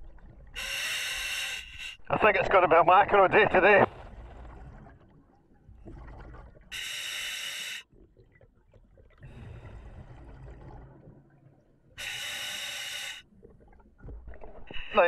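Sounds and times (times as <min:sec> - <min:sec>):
diver inhaling through regulator: 0:00.6 - 0:02.0, 0:06.7 - 0:07.9, 0:12.0 - 0:13.2
bubbling of exhaled air: 0:03.9 - 0:06.8, 0:08.0 - 0:12.6.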